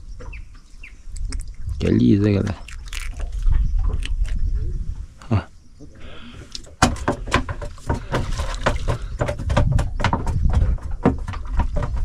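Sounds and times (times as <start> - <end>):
fish flapping against boat: 6.8 - 12.0.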